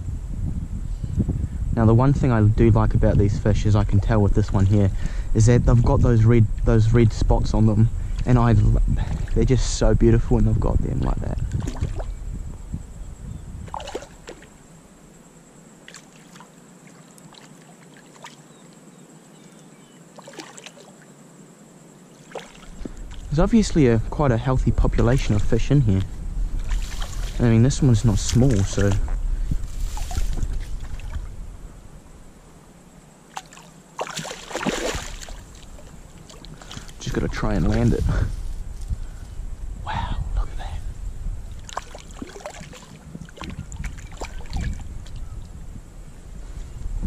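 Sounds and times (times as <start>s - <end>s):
creek water trickling: 11.2s - 12.4s, 13.7s - 23.9s, 26.4s - 32.2s, 32.8s - 38.2s, 41.4s - 45.6s
light splashes: 13.7s - 14.5s, 15.8s - 18.5s, 20.2s - 21.0s, 22.2s - 23.3s, 26.6s - 27.4s, 29.8s - 31.3s, 33.3s - 37.8s, 41.6s - 45.2s.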